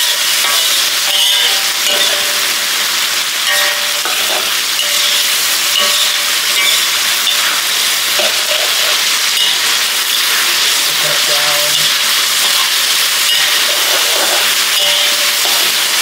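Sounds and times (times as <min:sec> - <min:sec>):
metal spatula scraping wok: 0:00.0 - 0:16.0
paste sizzling in oil: 0:00.0 - 0:16.0.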